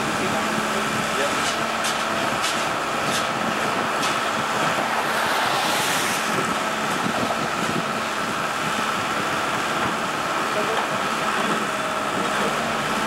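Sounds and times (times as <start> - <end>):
diesel engine hum: 0.0 - 13.0
road vehicle passing: 1.6 - 10.2.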